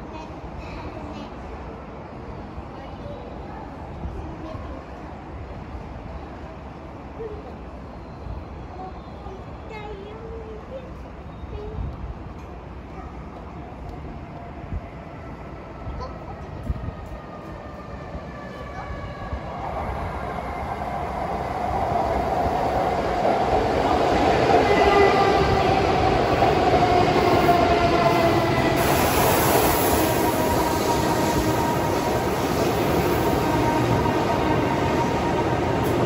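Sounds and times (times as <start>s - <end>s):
train rushing: 12.0s - 36.0s.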